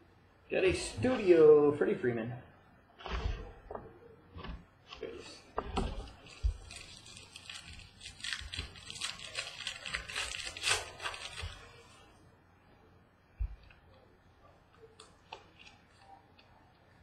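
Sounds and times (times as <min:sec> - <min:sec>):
foil wrapper crinkling and tearing: 0:06.0 - 0:12.1.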